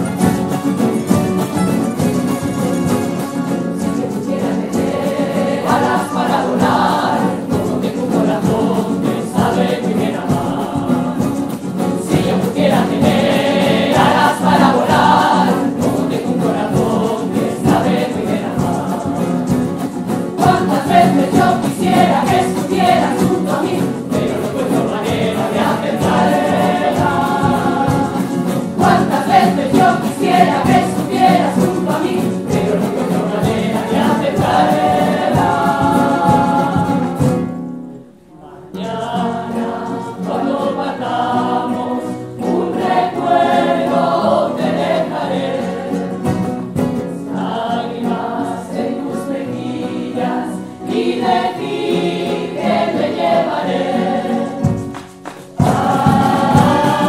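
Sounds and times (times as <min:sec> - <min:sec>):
strummed guitars and mandolins: 0:00.0 - 0:57.0
women singing in chorus: 0:03.9 - 0:19.7, 0:20.4 - 0:37.5, 0:38.3 - 0:54.9, 0:55.5 - 0:57.0.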